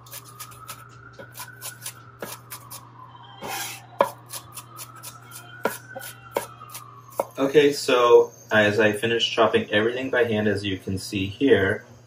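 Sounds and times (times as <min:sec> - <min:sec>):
knife chopping on wooden board: 0:00.0 - 0:02.8, 0:03.4 - 0:07.4
knife rasp: 0:03.4 - 0:07.3.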